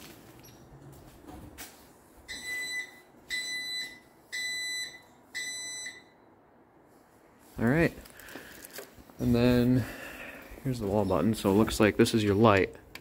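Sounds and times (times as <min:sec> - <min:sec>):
high-pitched warning beeps: 0:02.3 - 0:06.2.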